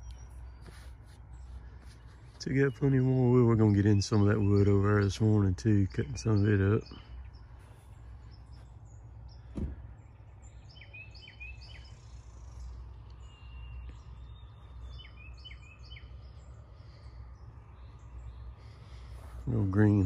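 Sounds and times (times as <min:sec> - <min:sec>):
bird chirps: 0:00.0 - 0:20.0
steady low rumble: 0:00.0 - 0:20.0
sharp knock: 0:09.5 - 0:09.8.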